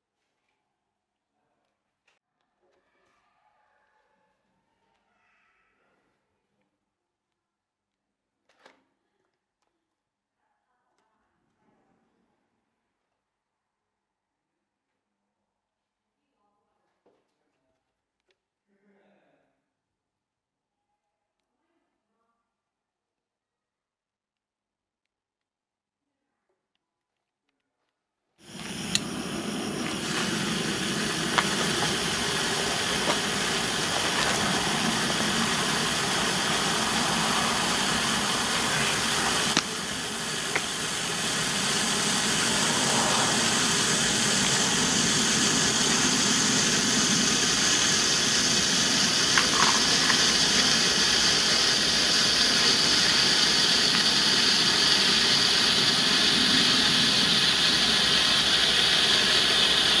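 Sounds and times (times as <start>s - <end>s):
flare burning with hiss: 28.4s - 60.0s.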